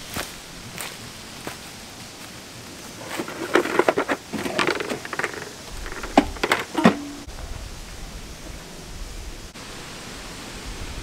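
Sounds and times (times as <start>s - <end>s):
footsteps on dry leaves: 0.0s - 6.1s
scooter tyres crackling on leaves: 0.0s - 9.4s.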